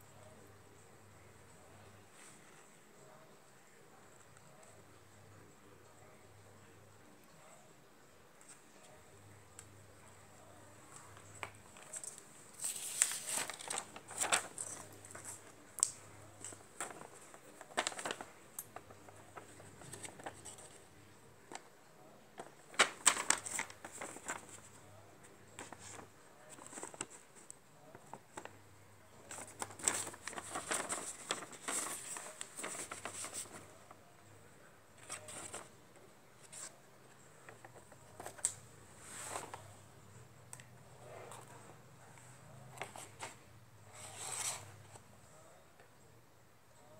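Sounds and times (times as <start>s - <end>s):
paper rustling: 10.5s - 34.1s, 34.9s - 39.8s, 42.7s - 45.0s.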